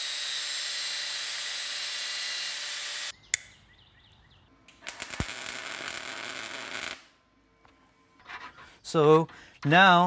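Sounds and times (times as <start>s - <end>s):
angle grinder cutting metal pipe: 0.0s - 3.1s
welding arc crackling: 4.7s - 7.1s.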